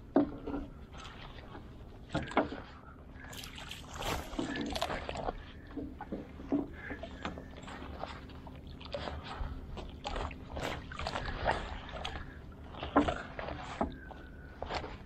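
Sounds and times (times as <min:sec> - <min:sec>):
water splashing: 0:00.9 - 0:15.0.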